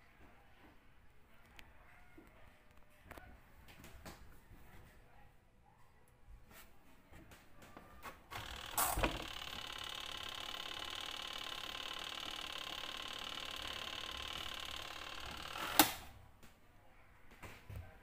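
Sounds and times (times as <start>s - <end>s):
spin motor whining: 8.4s - 16.1s
timer knob clicking: 8.4s - 16.1s
sharp click: 13.6s - 16.1s.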